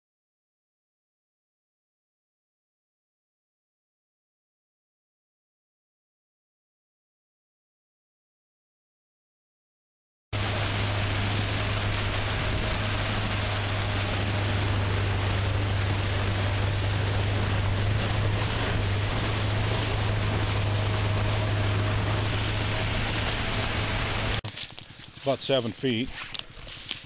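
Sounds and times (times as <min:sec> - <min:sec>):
boat motor running: 0:10.4 - 0:27.0
water churning along hull: 0:10.4 - 0:27.0.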